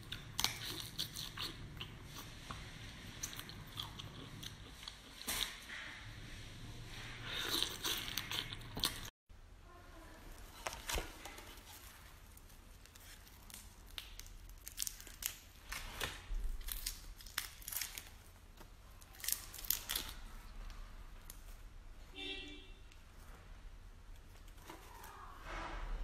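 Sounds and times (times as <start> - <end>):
shrimp shell crackling as peeled: 12.9 - 15.9.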